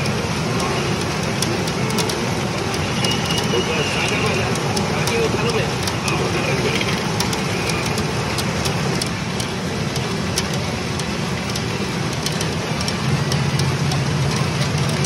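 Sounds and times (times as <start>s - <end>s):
sharp clicks: 0.0s - 15.0s.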